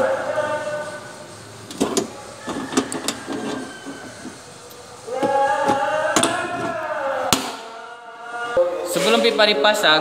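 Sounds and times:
person singing long note: 5.0s - 10.0s.

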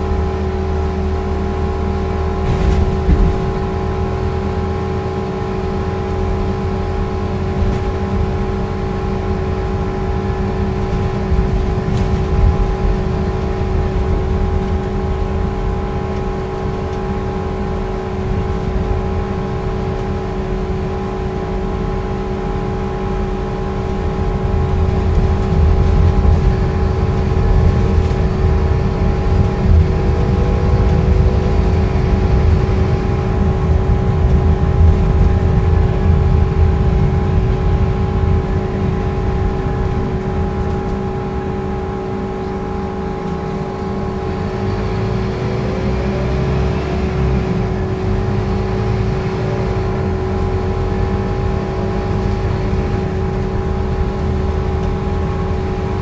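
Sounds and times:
bus engine and road rumble: 0.0s - 56.0s
steady whine: 0.0s - 56.0s.

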